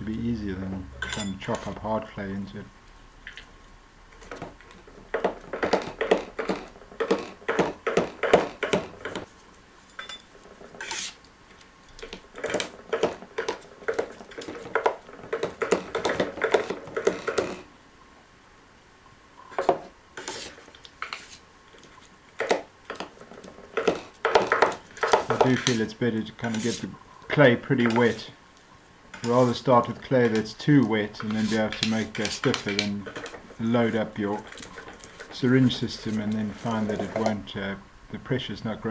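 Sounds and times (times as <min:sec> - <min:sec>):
knife chopping clay on a board: 0:05.2 - 0:09.3, 0:22.4 - 0:23.1, 0:23.8 - 0:25.8.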